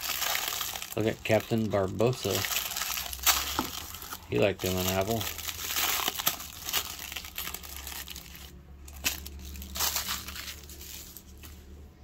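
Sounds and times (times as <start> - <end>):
tissue paper crinkling: 0.0 - 11.8.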